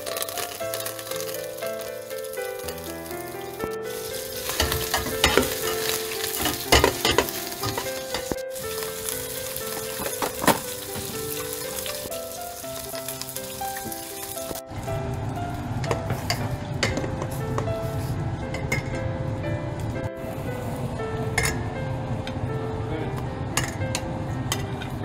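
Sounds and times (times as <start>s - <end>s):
food sizzling in hot oil: 0.0s - 18.8s
background music sustained tones: 0.0s - 25.0s
metal tongs clinking on pot: 4.4s - 8.4s.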